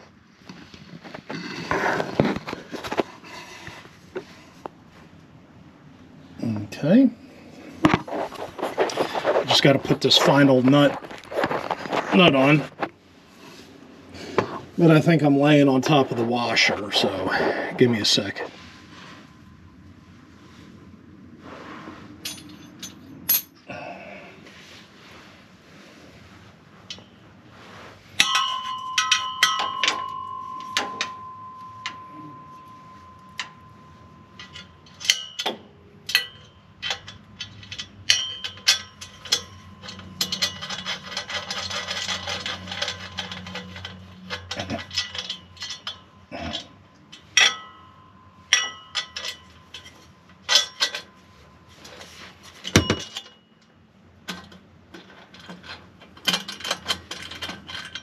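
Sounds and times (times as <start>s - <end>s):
metal tools clinking and scraping: 0.0s - 4.8s, 6.4s - 19.7s, 22.1s - 23.9s, 26.8s - 58.0s
struck metal ringing: 28.2s - 51.7s, 52.6s - 53.6s.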